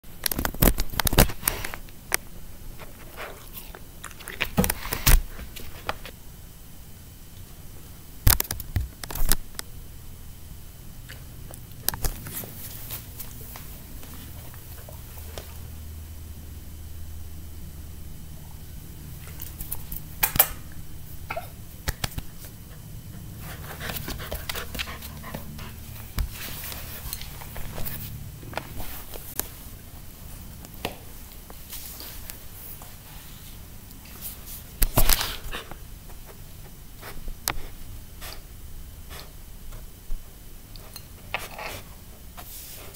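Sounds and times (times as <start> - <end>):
steady low hum: 0.0 - 42.9
puppy panting: 22.6 - 26.9.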